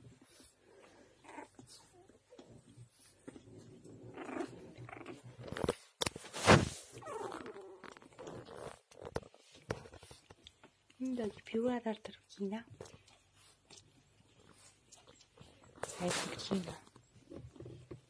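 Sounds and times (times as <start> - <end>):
puppies grunting and whimpering: 0.1 - 5.6, 6.9 - 8.9.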